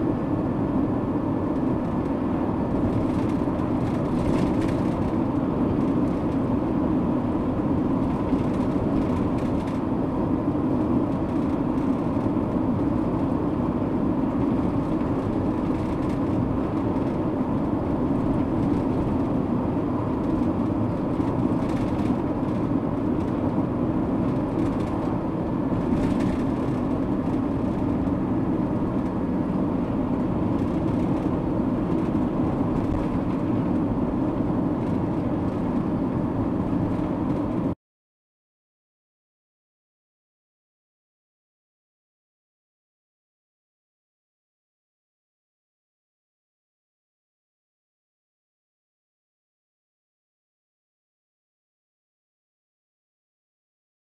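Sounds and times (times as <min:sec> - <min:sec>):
car road and engine rumble: 0:00.0 - 0:37.8.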